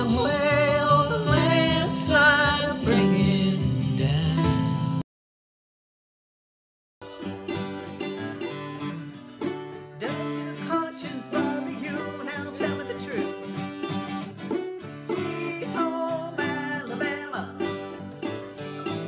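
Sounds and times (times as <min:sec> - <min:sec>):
woman singing: 0:00.0 - 0:04.5, 0:10.0 - 0:13.4, 0:15.0 - 0:18.1
ukulele and acoustic guitar: 0:00.0 - 0:05.0, 0:07.0 - 0:19.0.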